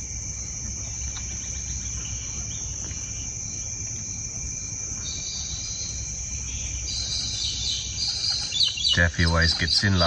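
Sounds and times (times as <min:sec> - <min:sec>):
low background rumble: 0:00.0 - 0:10.0
trilling insects: 0:00.0 - 0:10.0
faint bird chirps: 0:04.9 - 0:10.0.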